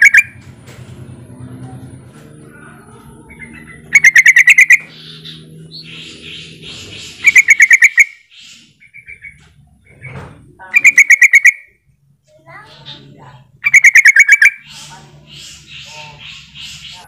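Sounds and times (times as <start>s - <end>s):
bulbul rapid chattering: 3.9s - 5.0s, 6.3s - 8.2s, 10.7s - 11.7s, 13.6s - 17.0s.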